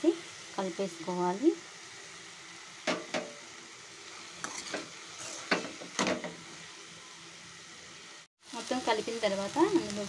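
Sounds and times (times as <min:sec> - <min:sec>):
faint sizzle: 0:00.0 - 0:10.0
utensil scraping a metal pan: 0:04.4 - 0:06.3.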